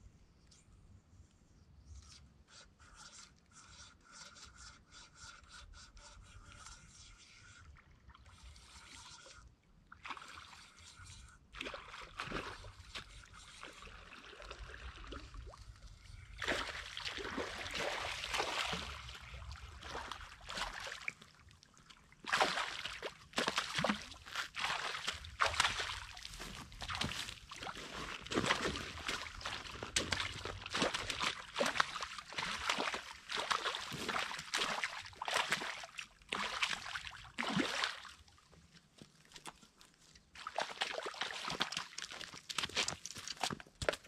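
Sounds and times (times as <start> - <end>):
fish splashing in water: 22.2 - 38.1.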